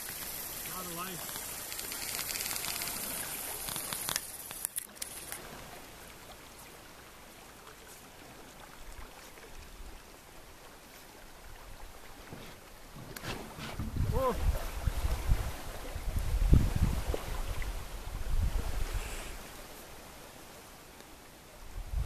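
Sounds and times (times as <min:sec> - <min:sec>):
river water rushing: 0:00.0 - 0:21.8
sharp clicks: 0:01.2 - 0:05.4.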